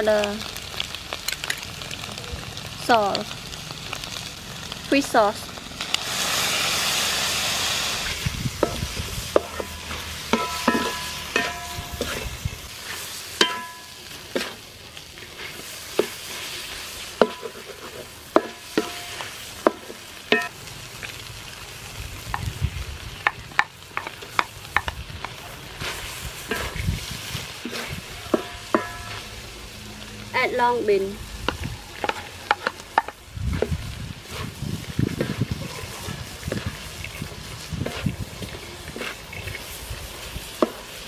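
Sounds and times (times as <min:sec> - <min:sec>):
shrimp sizzling in a hot pan: 0:00.0 - 0:41.0
spatula clanking against pan: 0:09.4 - 0:12.1, 0:13.4 - 0:14.5, 0:28.3 - 0:29.1.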